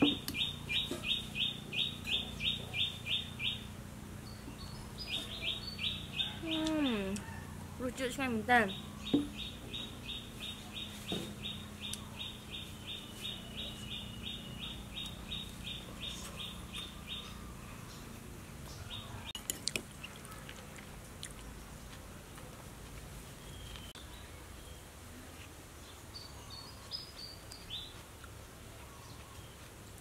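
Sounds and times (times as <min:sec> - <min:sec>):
bird chirping: 0:00.0 - 0:07.2, 0:08.2 - 0:19.3.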